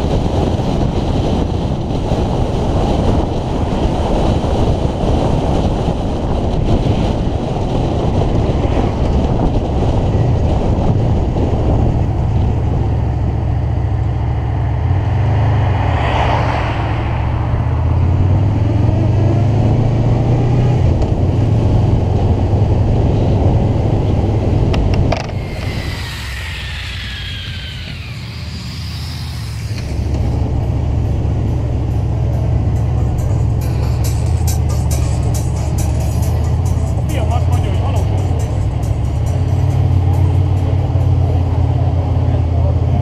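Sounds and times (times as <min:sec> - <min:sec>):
wind buffeting microphone: 0:00.0 - 0:14.2, 0:14.9 - 0:34.5
car passing: 0:14.2 - 0:20.1, 0:25.1 - 0:37.2
motorcycle engine droning: 0:21.0 - 0:37.1.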